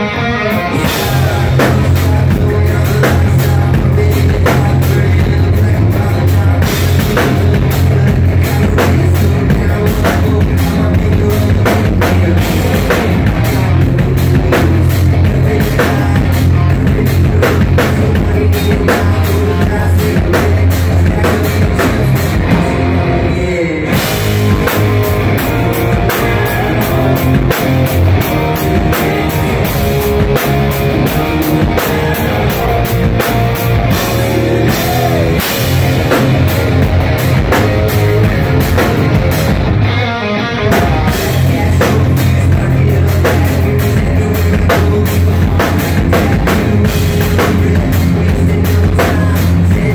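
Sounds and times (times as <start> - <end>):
pounding drum kit: 0.0 - 49.9
rock band playing: 0.0 - 49.9.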